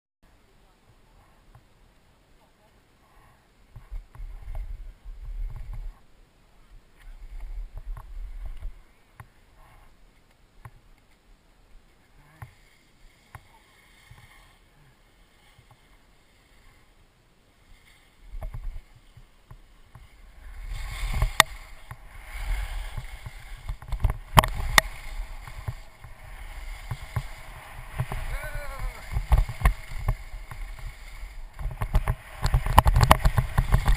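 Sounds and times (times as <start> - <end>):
skis scraping over snow: 11.8 - 33.9
sharp clacks from skis: 12.0 - 14.6, 15.4 - 16.8, 17.8 - 33.9
wind buffeting microphone: 20.2 - 33.9.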